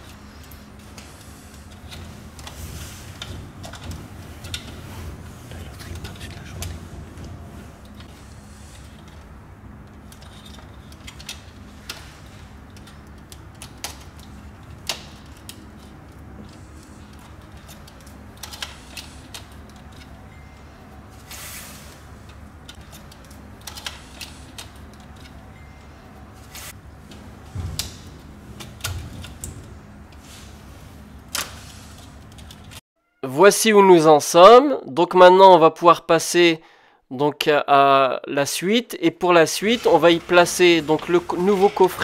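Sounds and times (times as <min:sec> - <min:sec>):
low hum: 0:00.0 - 0:18.5.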